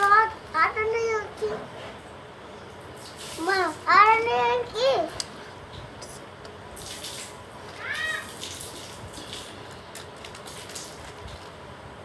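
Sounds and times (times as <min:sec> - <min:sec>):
plastic sleeves crinkling: 0:09.5 - 0:11.6.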